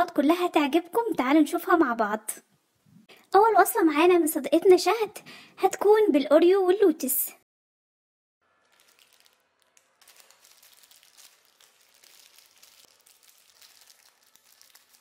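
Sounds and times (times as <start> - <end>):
plastic packet crinkling: 8.5 - 15.0.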